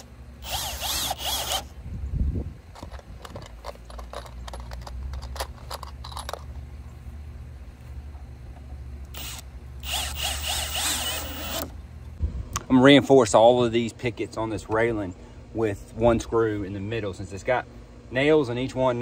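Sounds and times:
cordless drill driving a screw: 0.0s - 1.7s, 9.2s - 11.8s.

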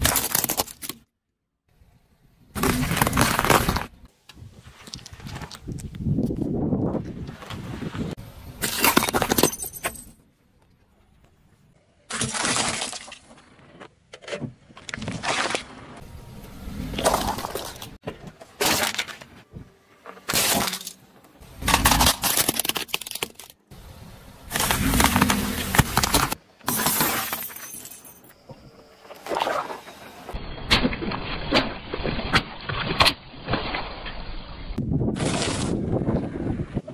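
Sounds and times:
tyre crushing objects: 0.0s - 1.0s, 2.6s - 4.0s, 20.1s - 23.6s, 24.5s - 27.6s
glass shattering: 26.7s - 28.3s.

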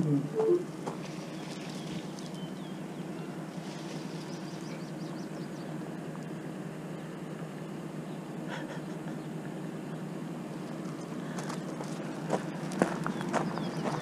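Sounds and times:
bird chirping: 0.0s - 5.8s, 12.9s - 14.0s
low mechanical hum: 0.0s - 14.0s.

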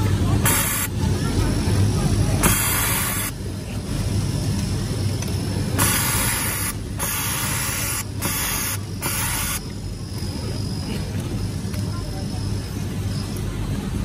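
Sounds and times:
factory machinery hum: 0.0s - 14.0s
compressed air hissing: 0.4s - 1.0s, 2.4s - 3.8s, 5.6s - 9.7s.

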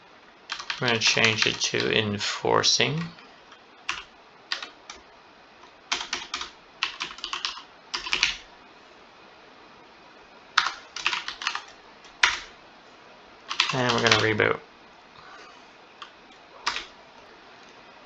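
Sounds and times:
computer keyboard typing: 0.5s - 1.9s, 3.9s - 5.0s, 5.9s - 8.4s, 10.6s - 12.5s, 13.5s - 14.4s, 16.0s - 16.9s.

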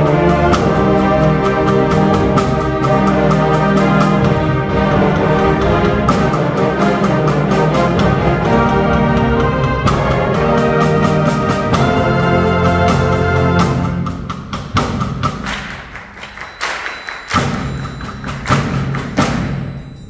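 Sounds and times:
concert band sustained chords: 0.0s - 14.2s
sharp percussive hits: 13.8s - 20.0s.

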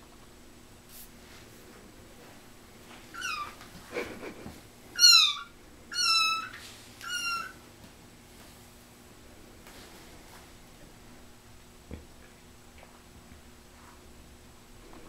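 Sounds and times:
kitten mewing: 3.1s - 3.6s, 4.9s - 7.6s.

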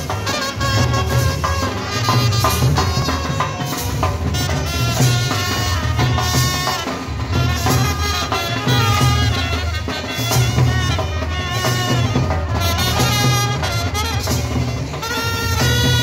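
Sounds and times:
reedy wind instrument melody: 0.0s - 16.0s
steady drumming: 0.0s - 16.0s.

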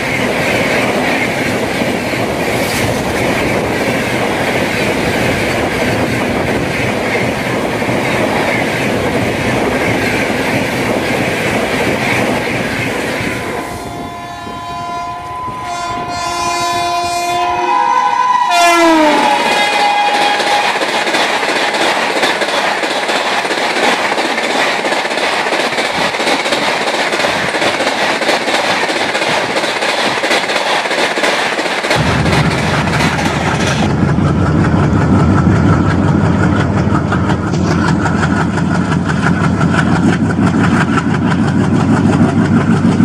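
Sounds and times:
train wheels clacking on rails: 0.0s - 14.0s, 18.9s - 43.0s
locomotive engine drone: 0.0s - 20.7s, 31.9s - 43.0s.

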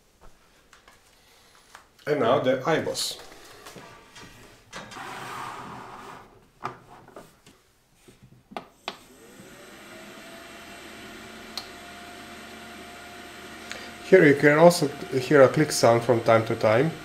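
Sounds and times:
device sliding on wooden bench: 3.7s - 7.2s
fan whirring: 9.1s - 17.0s.

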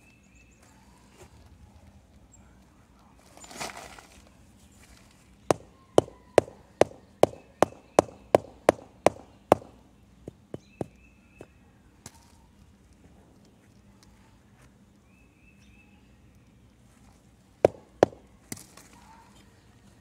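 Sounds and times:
rubber mallet knocking paver: 5.5s - 11.0s, 17.6s - 18.2s.

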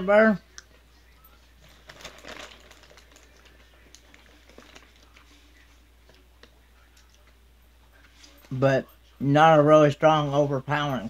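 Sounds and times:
chewing popcorn: 1.6s - 7.4s.

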